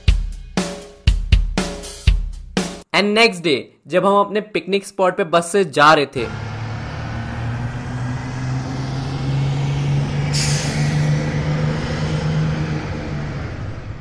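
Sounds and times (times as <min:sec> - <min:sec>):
bus engine humming: 0:06.2 - 0:14.0.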